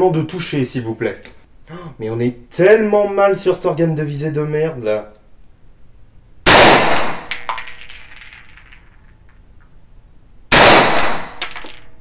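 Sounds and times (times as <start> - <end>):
gunshots echoing indoors: 6.5 - 7.6, 10.5 - 11.8.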